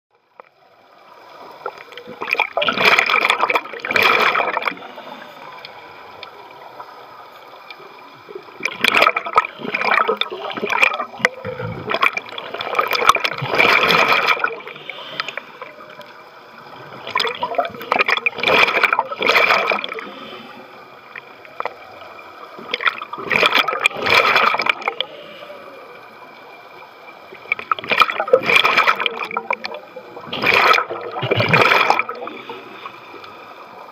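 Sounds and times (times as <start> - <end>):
regulator bubbling underwater: 0.8 - 32.7
breathing hiss: 14.6 - 16.0, 19.9 - 21.1, 24.8 - 26.2, 32.2 - 33.8.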